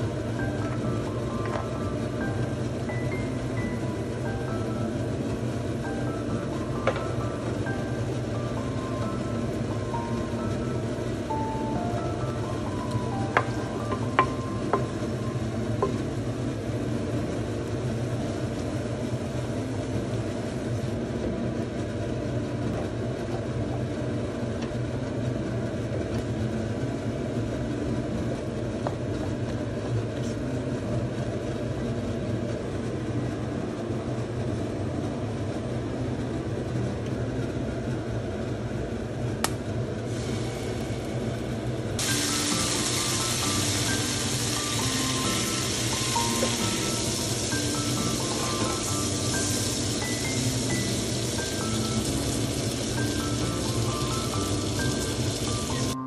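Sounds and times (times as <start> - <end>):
oil sizzling in frying pan: 0.0 - 20.9, 40.1 - 56.0
soft background music: 0.0 - 21.0, 42.0 - 56.0.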